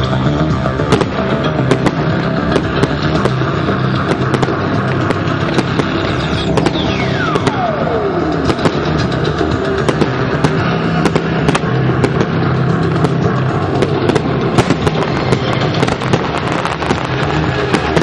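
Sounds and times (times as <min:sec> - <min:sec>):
fireworks bangs and crackles: 0:00.0 - 0:18.0
music playing: 0:00.0 - 0:18.0
falling firework whistle: 0:05.6 - 0:09.0.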